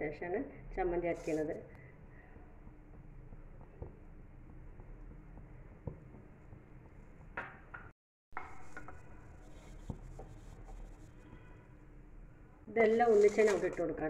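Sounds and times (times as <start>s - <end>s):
stirring scraping in a pan: 8.4s - 11.8s.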